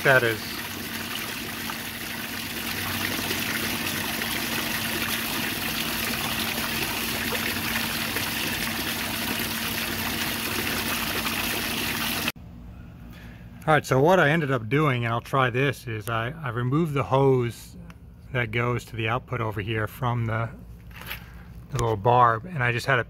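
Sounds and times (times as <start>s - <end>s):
water trickling and splashing: 0.0s - 12.4s.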